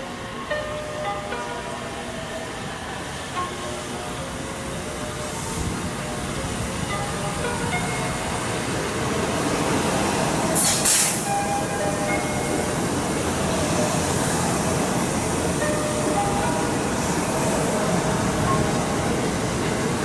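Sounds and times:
electric train rumbling past: 0.0 - 20.0
short sharp hiss: 10.6 - 11.3.

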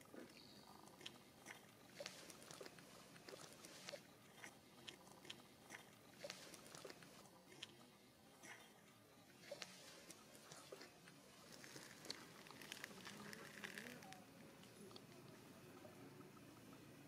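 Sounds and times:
light clicks and crackles: 9.4 - 15.4.

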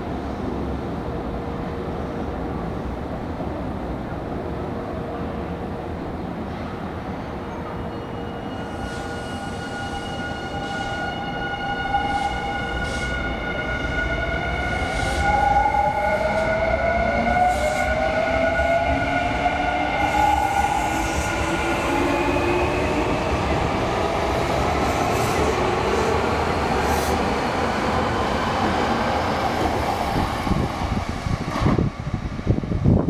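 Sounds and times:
wind thumps on microphone: 30.1 - 33.0.

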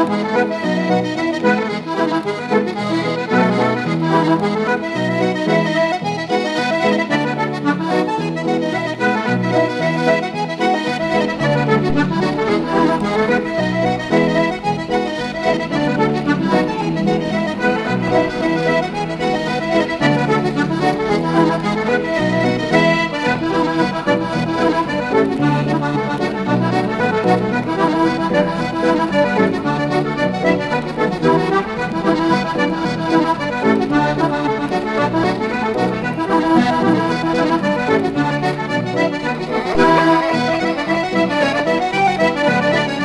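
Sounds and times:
accordion music: 0.0 - 43.0.

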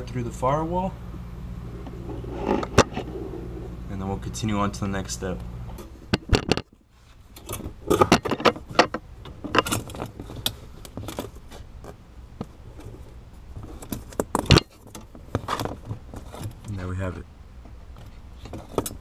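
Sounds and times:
wire clicking and scraping: 1.8 - 3.3.

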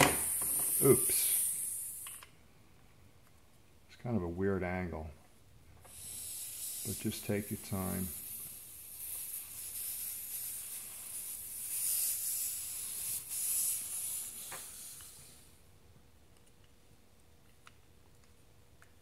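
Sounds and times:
compressed air hissing: 0.0 - 2.3, 5.8 - 15.6.

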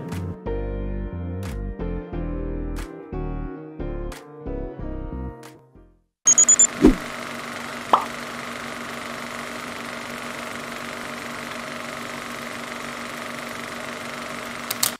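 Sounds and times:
glitchy electronic blips: 6.3 - 7.1
short rising zip: 6.5 - 7.1.

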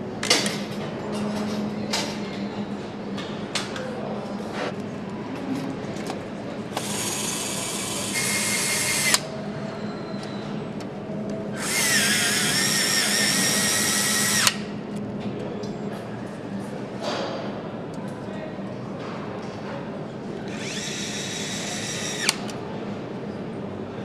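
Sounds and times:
power tool whining: 11.6 - 14.6, 20.5 - 22.4.

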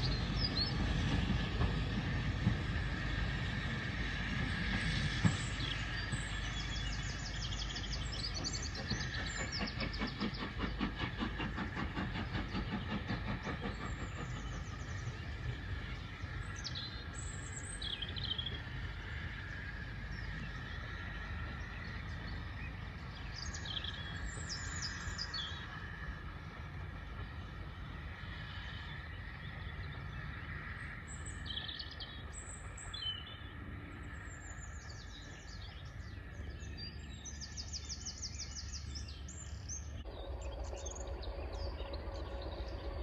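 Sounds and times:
birds singing: 0.0 - 43.0
steam locomotive chugging: 0.0 - 43.0.

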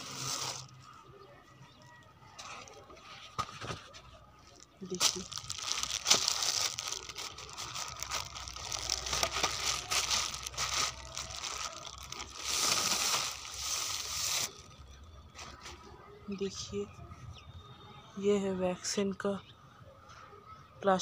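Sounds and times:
plastic bag crinkling: 0.0 - 0.9, 4.4 - 14.8.

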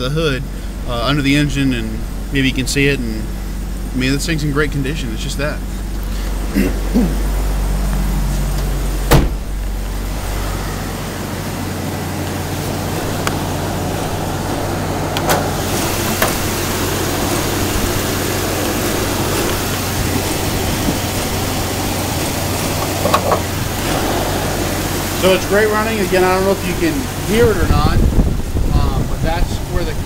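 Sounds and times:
car engine idling: 0.0 - 30.0
sharp thump: 9.0 - 9.7, 23.1 - 25.6.

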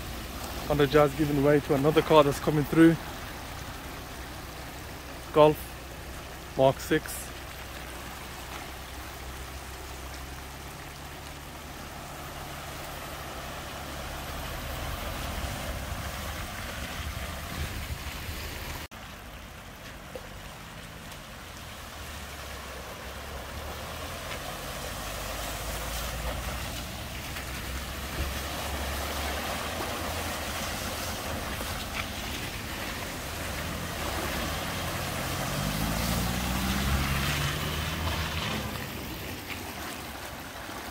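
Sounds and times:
car engines running low: 0.0 - 40.9
car splashing through water: 0.0 - 40.9
water rushing across road: 0.0 - 40.9
wheels pushing through water: 0.0 - 40.9
car engine revving: 33.4 - 39.2.

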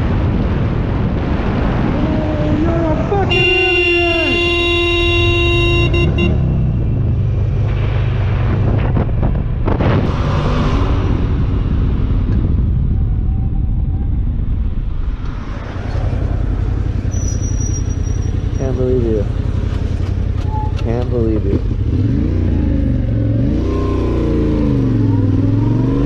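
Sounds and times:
motorcycle engine rumble: 0.0 - 10.2, 10.8 - 26.0
wind noise on microphone: 0.0 - 17.3.

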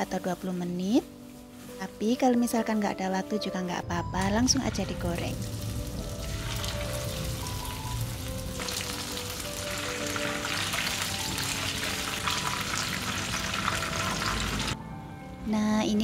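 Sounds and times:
fish deep-frying in hot oil: 4.7 - 14.8.

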